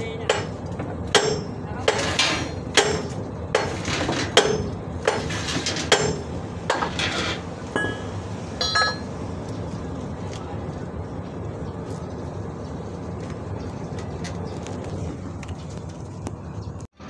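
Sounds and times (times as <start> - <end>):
hammer striking steel: 0.3 - 9.1
light metallic clinks: 7.8 - 9.1.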